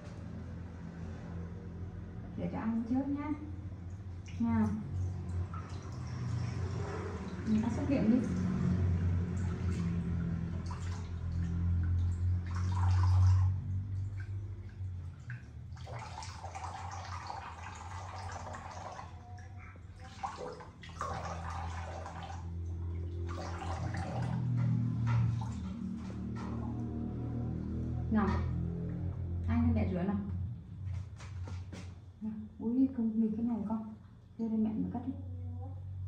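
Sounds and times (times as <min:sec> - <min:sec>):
tap water running into basin: 0:03.8 - 0:27.6
water splashing: 0:03.8 - 0:27.8.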